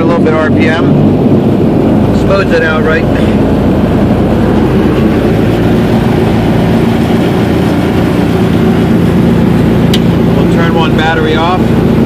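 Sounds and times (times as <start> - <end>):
aircraft engine running: 0.0 - 12.0.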